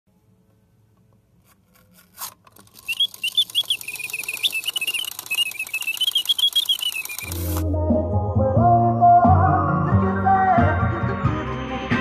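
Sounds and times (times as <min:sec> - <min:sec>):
clicks: 0:02.2 - 0:07.7
clockwork ticking: 0:02.7 - 0:07.6
mechanical birdsong whistle: 0:02.7 - 0:07.6.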